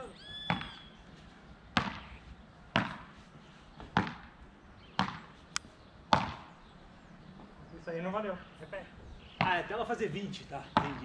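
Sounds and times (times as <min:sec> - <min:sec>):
paddles hitting ball: 0:01.8 - 0:02.1, 0:02.7 - 0:03.1, 0:03.8 - 0:04.4, 0:05.0 - 0:05.3, 0:06.1 - 0:06.5, 0:10.7 - 0:11.0.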